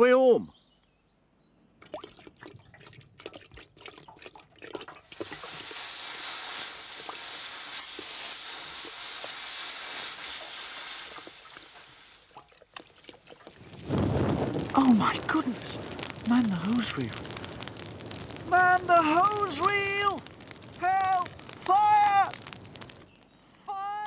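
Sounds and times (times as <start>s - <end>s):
welding torch crackling and spitting: 2.0s - 23.4s
welding torch hissing: 5.2s - 12.3s, 13.7s - 23.2s.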